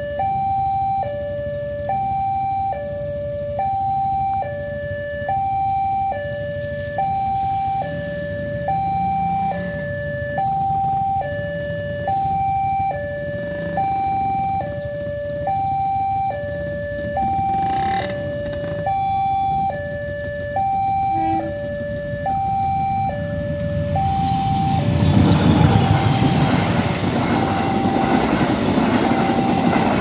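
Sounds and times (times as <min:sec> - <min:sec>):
level crossing alarm two-tone ding-dong: 0:18.7 - 0:25.2.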